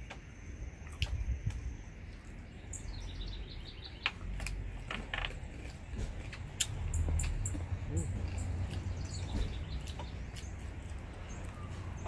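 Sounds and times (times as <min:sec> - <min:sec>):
bird chirping: 0:00.0 - 0:12.0
chewing and utensil clicks: 0:04.0 - 0:11.6.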